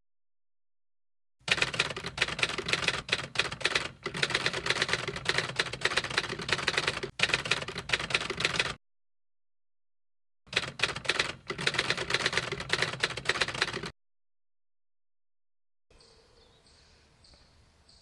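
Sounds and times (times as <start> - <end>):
typewriter keys typing: 1.5 - 8.8, 10.5 - 13.9.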